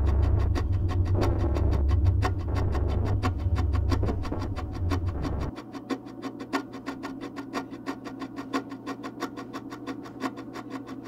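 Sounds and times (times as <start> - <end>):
faint steady low tone: 0.0 - 5.5
fast even ticking: 0.0 - 5.5
heavy bass: 0.0 - 5.5.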